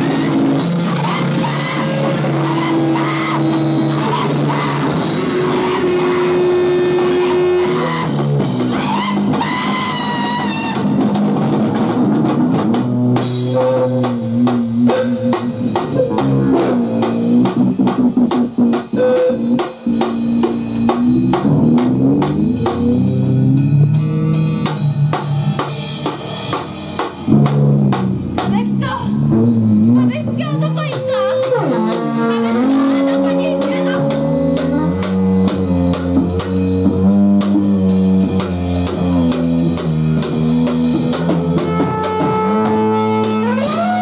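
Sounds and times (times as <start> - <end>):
electric guitar: 0.0 - 13.9
drum kit: 0.0 - 44.0
electric bass: 0.0 - 44.0.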